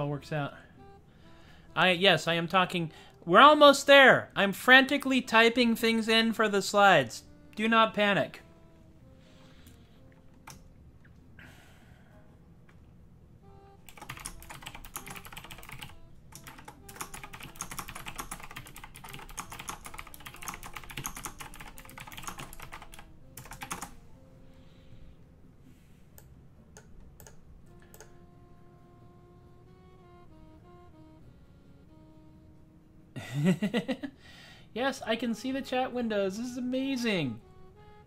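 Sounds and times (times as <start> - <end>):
fast typing on mechanical keyboard: 13.9 - 23.9.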